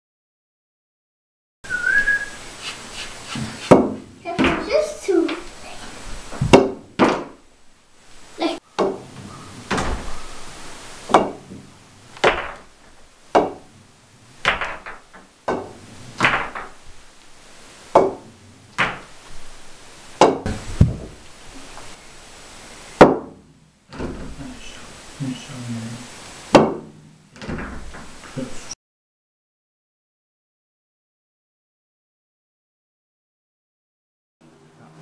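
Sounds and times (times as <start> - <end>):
pool balls clacking: 3.2 - 5.5, 6.3 - 7.5, 8.8 - 10.2, 11.0 - 17.0, 17.9 - 19.6, 20.2 - 22.0, 23.0 - 24.6
cue striking ball: 3.6 - 4.6, 6.4 - 7.4, 11.1 - 12.7, 13.3 - 13.7, 14.4 - 16.8, 17.9 - 19.1, 20.2 - 21.2, 23.0 - 23.4, 26.5 - 27.0.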